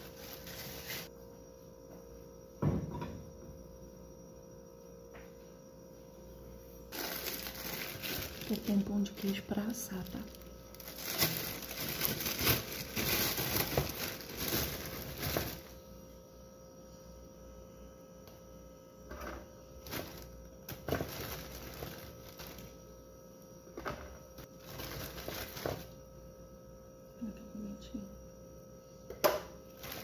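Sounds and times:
plastic bag rustling: 0.0 - 1.1, 6.9 - 15.8, 19.8 - 22.8, 23.9 - 26.0, 29.8 - 30.0
faint steady hum: 0.0 - 30.0.

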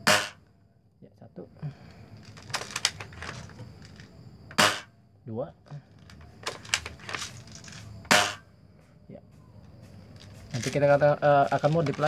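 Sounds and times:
airsoft rifle snap: 4.5 - 4.9.

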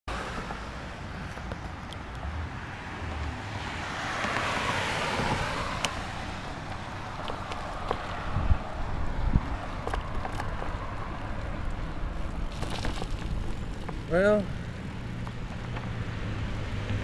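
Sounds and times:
passing vehicle tyre hiss: 2.2 - 9.8
wind buffeting microphone: 3.2 - 14.0.

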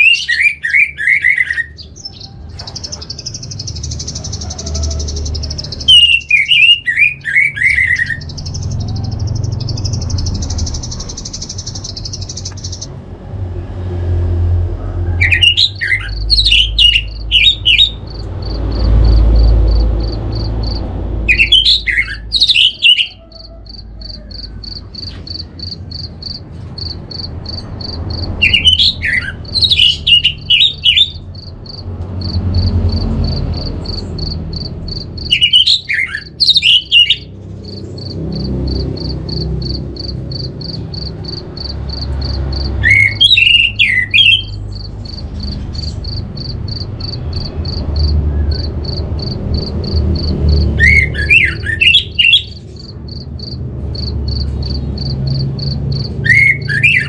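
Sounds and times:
fast-pulsed high chirping: 0.0 - 12.9, 15.4 - 57.0
thrush singing whistled phrases: 5.4 - 8.8, 21.3 - 23.8, 42.8 - 44.6, 56.2 - 57.0.

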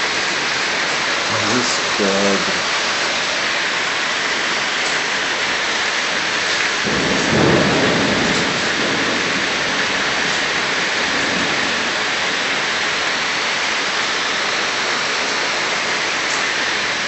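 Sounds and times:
steady rain falling: 0.0 - 17.0
low rumble of thunder: 6.8 - 12.0.

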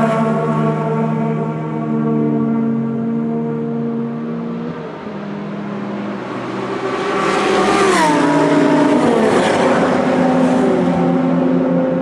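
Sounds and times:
race cars passing at speed: 0.0 - 12.0.

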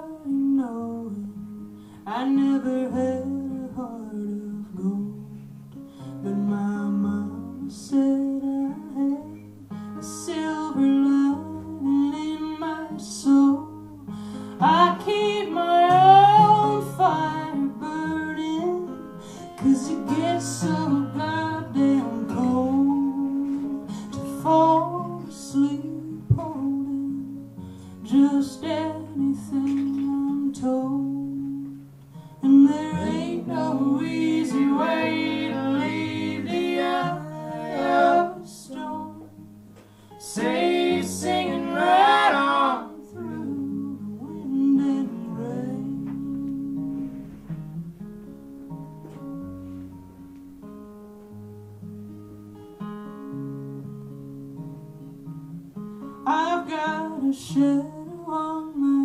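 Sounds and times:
double bass: 0.0 - 52.6
acoustic guitar: 0.0 - 59.0
person singing: 2.0 - 5.4, 10.1 - 27.4, 28.0 - 31.8, 32.4 - 39.4, 40.2 - 47.4, 56.3 - 59.0.

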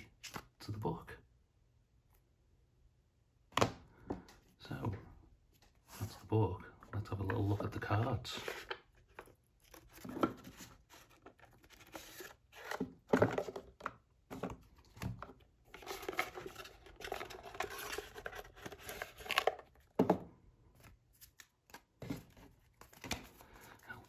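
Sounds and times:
cards scraping cardboard box: 9.6 - 13.6.

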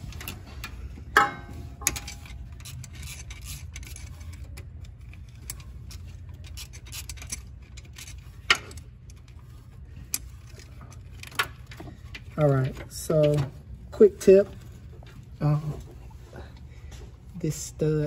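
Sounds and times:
metal tools clinking: 0.0 - 8.9
steady low hum: 0.0 - 18.0.

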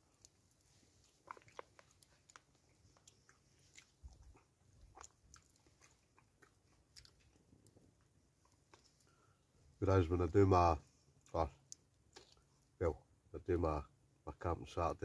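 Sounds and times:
quiet chewing: 0.0 - 9.8, 10.8 - 12.8.

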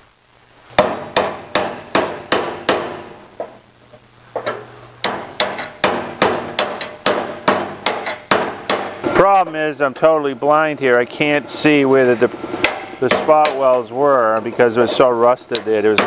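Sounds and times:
hammer striking steel chisel: 0.8 - 3.1, 4.4 - 9.0, 12.6 - 13.8.

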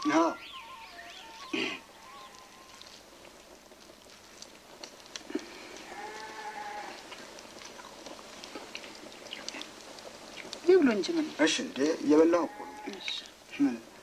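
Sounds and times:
faint animal bleat: 12.3 - 13.2.

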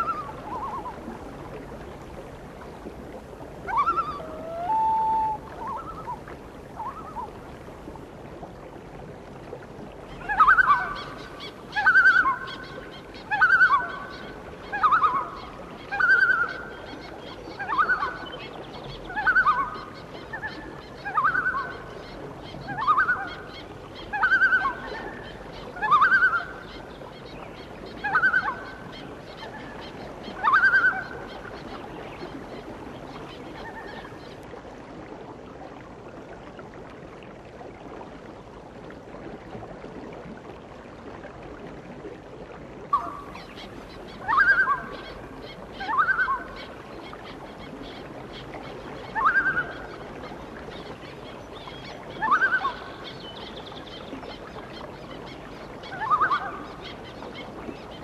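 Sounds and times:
bird calling: 0.0 - 1.0, 3.7 - 7.3, 10.1 - 31.8, 42.9 - 47.2, 49.1 - 50.0, 51.7 - 53.6, 55.9 - 58.0.

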